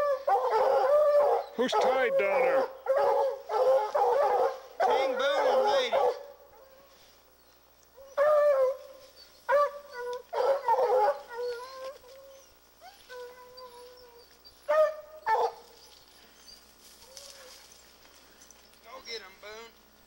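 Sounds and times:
drawn-out dog howls: 0.0 - 6.9, 8.0 - 15.8
hounds baying: 0.0 - 7.0, 8.0 - 19.4.

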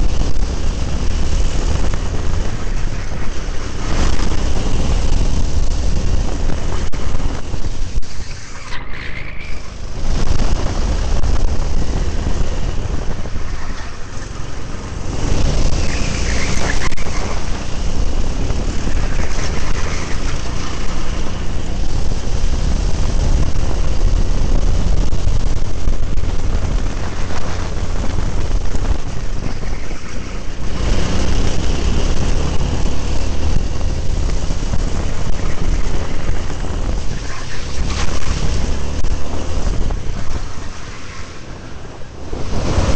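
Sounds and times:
go-kart engine running: 0.0 - 42.9
wind buffeting microphone: 0.0 - 42.9.

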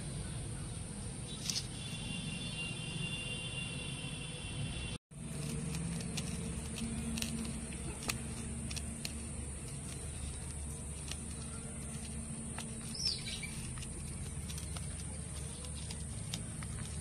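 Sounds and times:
low background hum: 5.2 - 17.0.

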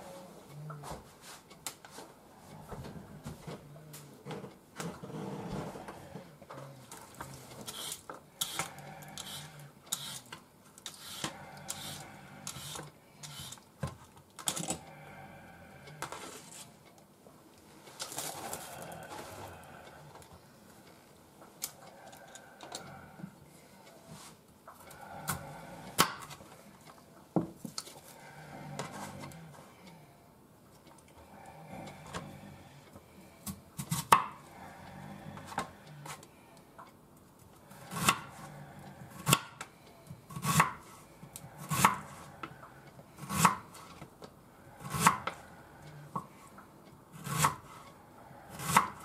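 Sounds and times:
knife scraping radish: 7.7 - 10.3, 10.9 - 13.6, 43.2 - 43.6, 47.2 - 47.8.

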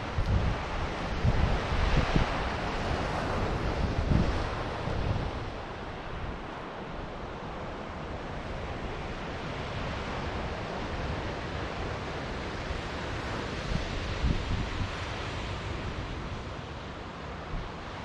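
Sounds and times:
wind buffeting microphone: 0.0 - 9.4, 13.5 - 16.2
ocean surf on a beach: 0.0 - 18.0.

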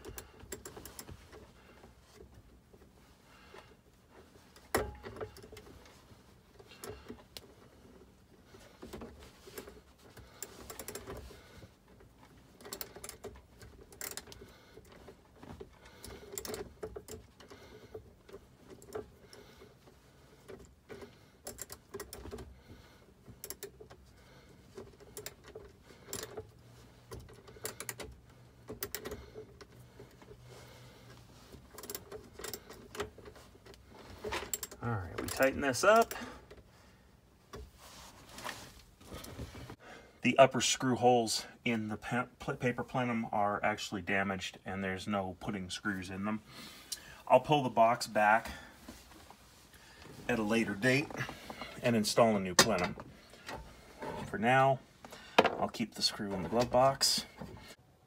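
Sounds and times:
metal clamp clicks and scrapes: 12.6 - 15.2.

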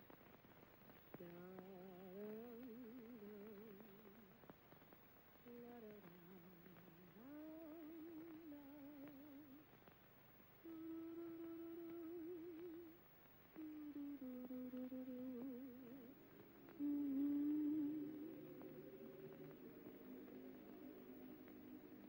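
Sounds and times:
woman humming: 5.4 - 9.6, 10.6 - 13.0, 13.6 - 22.0.

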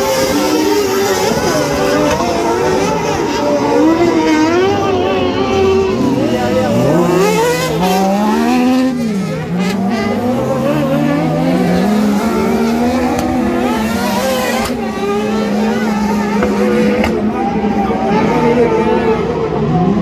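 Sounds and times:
racing buggy engines revving: 0.0 - 20.0.

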